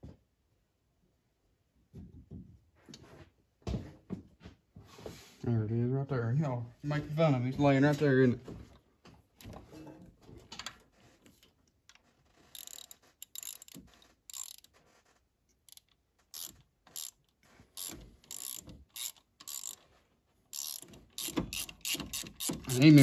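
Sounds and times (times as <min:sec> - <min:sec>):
hand ratchet clicking: 0:12.5 - 0:14.8, 0:15.6 - 0:19.8, 0:20.5 - 0:23.0.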